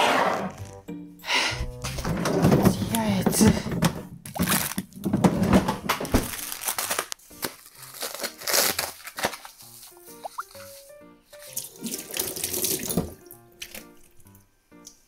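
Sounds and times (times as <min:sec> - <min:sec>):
background music plucked notes: 0:00.6 - 0:03.6, 0:09.8 - 0:12.3, 0:13.0 - 0:15.0
plastic packaging crinkling: 0:04.3 - 0:10.8.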